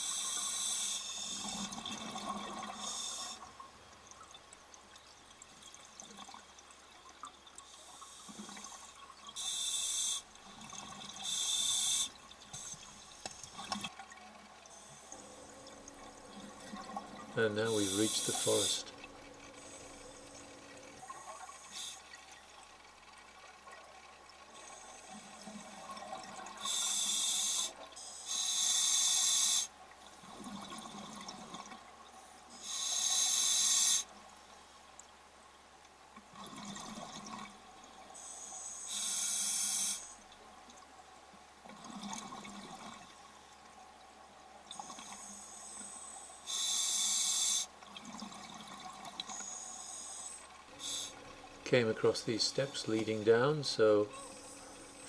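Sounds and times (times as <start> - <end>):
diver inhaling through regulator: 49.3 - 51.2.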